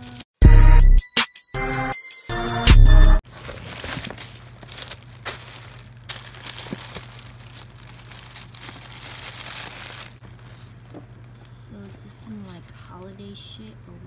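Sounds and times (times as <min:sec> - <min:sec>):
plastic packaging crinkling: 0:03.2 - 0:11.6.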